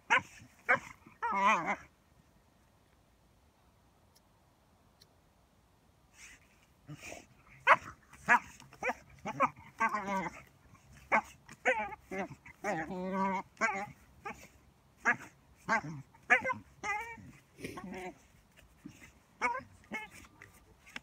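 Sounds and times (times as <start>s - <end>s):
dog yipping and whining: 0.0s - 1.8s, 6.2s - 21.0s
dog paws scratching sand: 6.2s - 21.0s.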